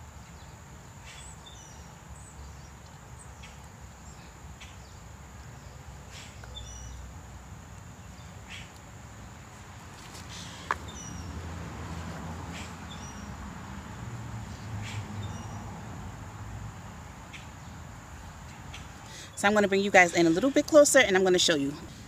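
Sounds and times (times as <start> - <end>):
bird chirps: 0.3 - 7.1, 14.6 - 15.7.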